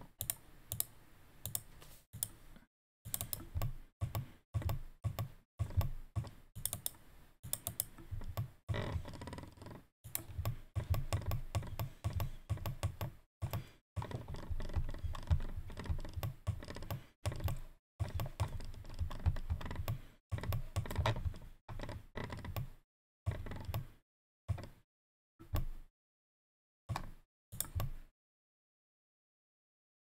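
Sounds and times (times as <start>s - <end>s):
mouse and keyboard clicking: 3.1s - 8.5s, 9.6s - 21.4s.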